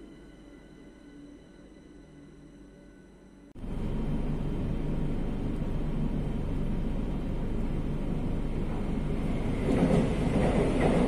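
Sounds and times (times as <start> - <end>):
metro train rumble inside carriage: 3.5 - 11.0
passing train rush: 3.6 - 11.0.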